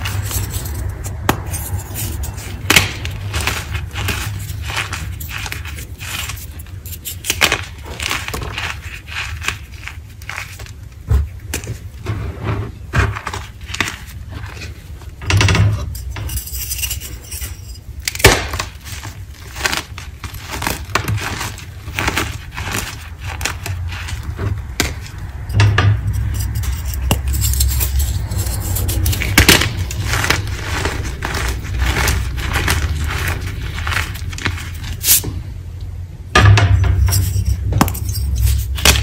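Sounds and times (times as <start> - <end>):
chalk crunching in hand: 0.0 - 10.8, 26.2 - 35.2.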